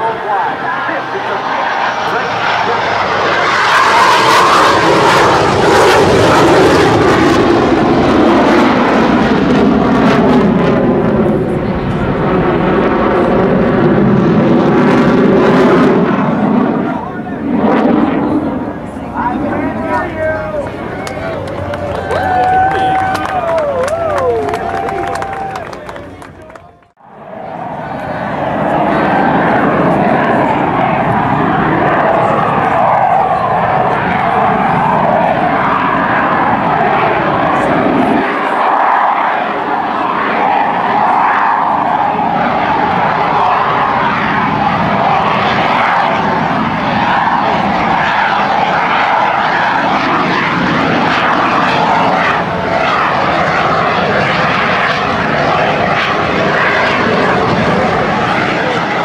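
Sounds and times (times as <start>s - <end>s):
jet engines flying past: 0.0s - 59.0s.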